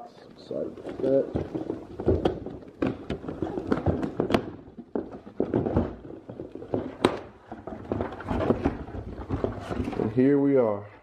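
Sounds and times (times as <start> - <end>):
cardboard flaps crackling: 0.5 - 10.2.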